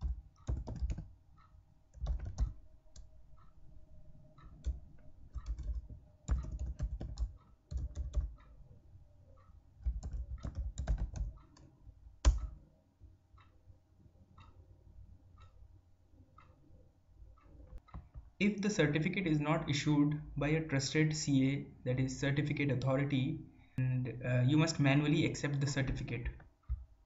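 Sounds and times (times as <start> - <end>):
typing on computer keyboard: 0.0 - 1.1, 1.9 - 3.1, 4.5 - 8.5, 9.8 - 12.6.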